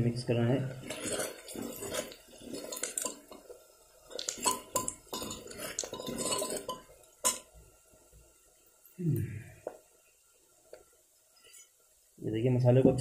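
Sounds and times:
steel ladle scraping metal pot: 0:00.7 - 0:07.5.

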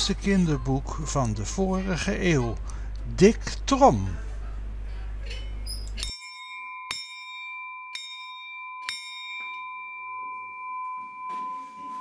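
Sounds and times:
hand bell ringing: 0:06.0 - 0:12.0.

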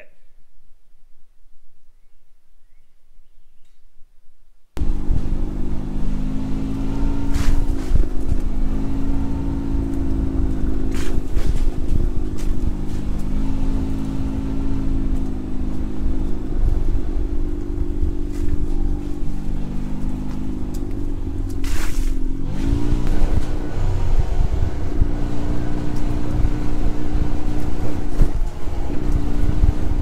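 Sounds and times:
vehicle engine running: 0:04.8 - 0:30.0.

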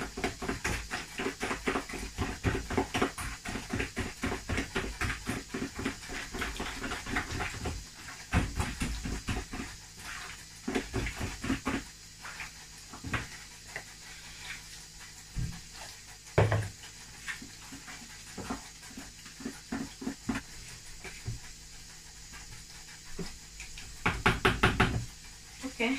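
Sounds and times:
batter squelching and slapping: 0:00.0 - 0:24.3.

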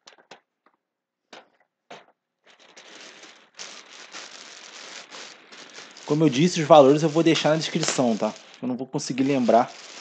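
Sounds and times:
plastic bag crinkling: 0:02.4 - 0:10.0.

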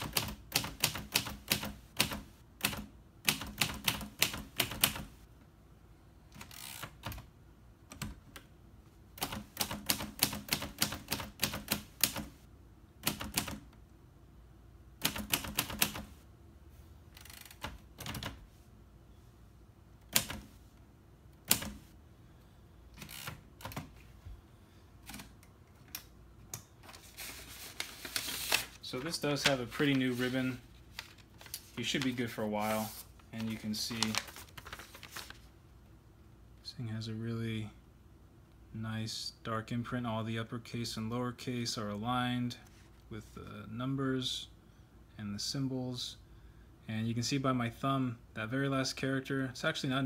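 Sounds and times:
manual typewriter typing: 0:00.0 - 0:05.2, 0:06.4 - 0:07.3, 0:09.2 - 0:12.4, 0:13.0 - 0:13.7, 0:15.0 - 0:16.2, 0:17.2 - 0:18.4, 0:20.1 - 0:20.5, 0:21.4 - 0:21.9, 0:23.0 - 0:23.9.

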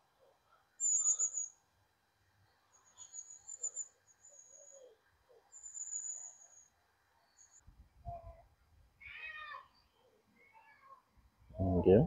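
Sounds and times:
small bird trilling: 0:00.8 - 0:01.6.

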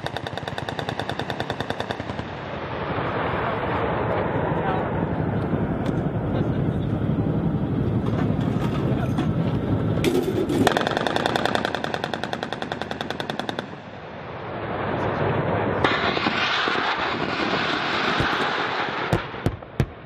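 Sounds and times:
rotary cannon firing: 0:00.0 - 0:02.4, 0:10.0 - 0:13.8, 0:15.8 - 0:20.0.

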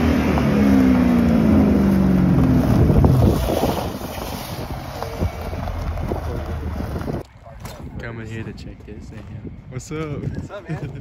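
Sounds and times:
car engine revving: 0:00.0 - 0:07.2
wind buffeting microphone: 0:00.7 - 0:11.0.

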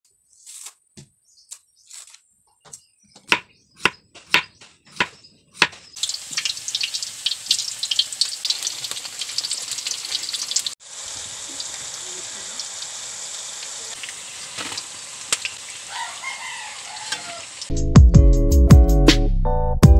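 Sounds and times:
banana slices frying in oil: 0:06.0 - 0:17.7.

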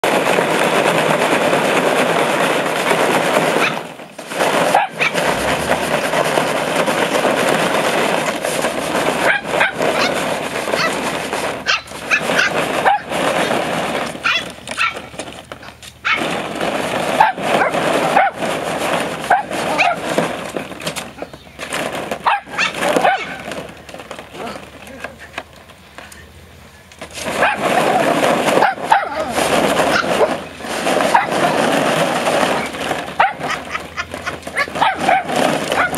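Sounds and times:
steady rushing noise: 0:00.0 - 0:24.2, 0:25.8 - 0:35.9
puppies yipping and barking: 0:03.6 - 0:03.9, 0:04.5 - 0:05.4, 0:09.2 - 0:16.4, 0:19.2 - 0:20.2, 0:22.2 - 0:23.5, 0:27.4 - 0:31.7, 0:32.5 - 0:35.9.

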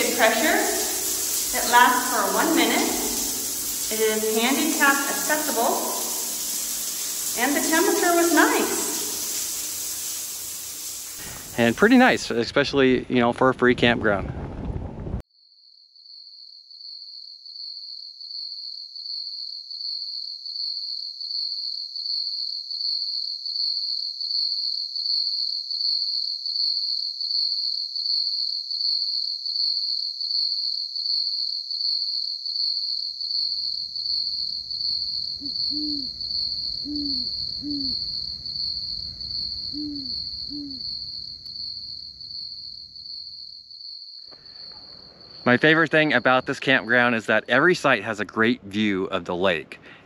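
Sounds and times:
owl hooting: 0:00.0 - 0:09.4, 0:35.4 - 0:38.2, 0:39.6 - 0:40.9
night insects trilling: 0:00.0 - 0:12.6, 0:15.4 - 0:48.4.

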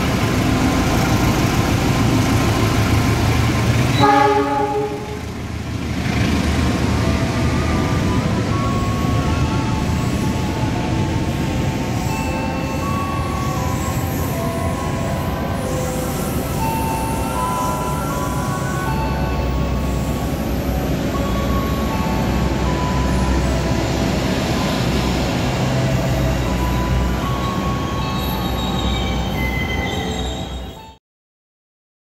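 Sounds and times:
locomotive engine rumble: 0:00.0 - 0:30.9
coaches rumbling on rails: 0:00.0 - 0:31.0
wheels squealing: 0:00.0 - 0:31.0
train horn blast: 0:03.9 - 0:05.3.

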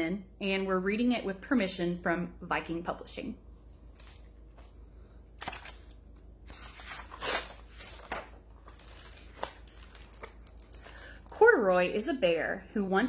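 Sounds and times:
book pages turning: 0:03.8 - 0:11.2
paper rustling and crinkling: 0:03.8 - 0:11.3.

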